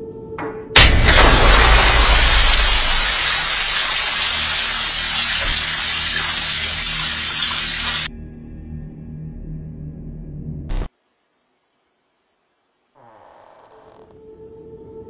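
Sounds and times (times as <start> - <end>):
water gushing and splashing: 0.8 - 8.1.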